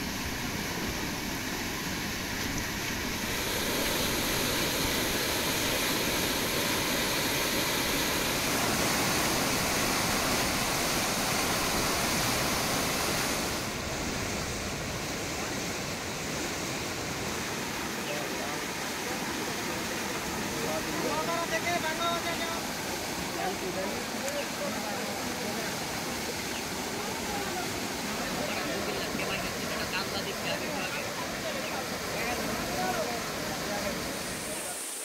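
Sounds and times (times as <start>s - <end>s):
floodwater rushing: 0.0s - 35.0s.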